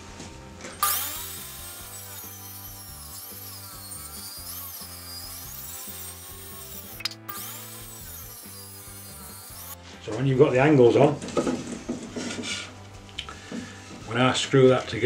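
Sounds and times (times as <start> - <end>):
background music: 0.0 - 15.0
table saw ripping wood: 0.8 - 9.8.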